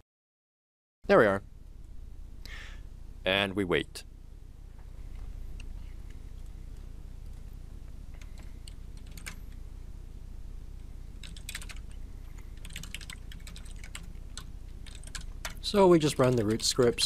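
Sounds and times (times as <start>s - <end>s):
low steady hum: 1.0s - 17.0s
keyboard typing: 8.1s - 9.4s, 11.2s - 17.0s.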